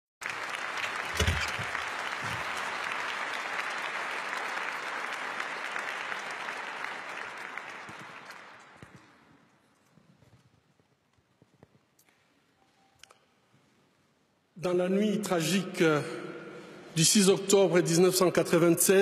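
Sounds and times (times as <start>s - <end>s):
audience applauding: 0.2s - 9.1s.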